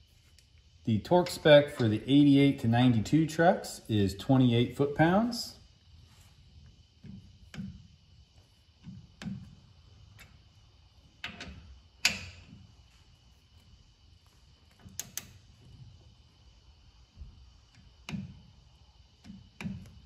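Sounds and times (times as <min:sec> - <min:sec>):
torque wrench clicking: 0:14.7 - 0:15.5.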